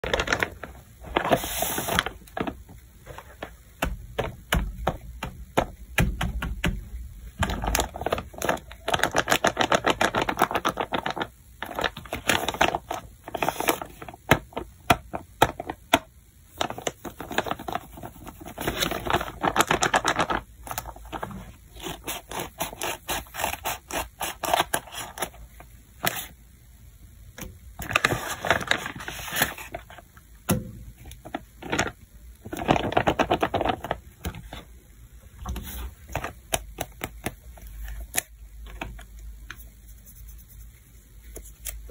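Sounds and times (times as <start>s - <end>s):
paper crinkling and rustling: 0.0s - 3.6s, 7.4s - 16.0s, 16.6s - 25.4s, 27.8s - 30.0s, 31.1s - 34.7s
fingers tapping on paper: 3.8s - 11.2s, 14.2s - 20.4s, 36.5s - 37.4s.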